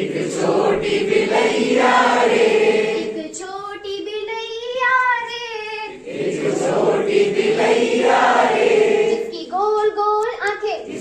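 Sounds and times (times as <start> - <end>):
group of adults singing: 0.0 - 3.2, 5.9 - 9.3.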